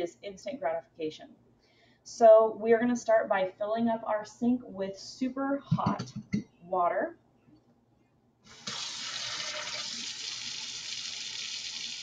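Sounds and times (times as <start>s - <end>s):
faucet water running into sink: 8.5s - 12.0s.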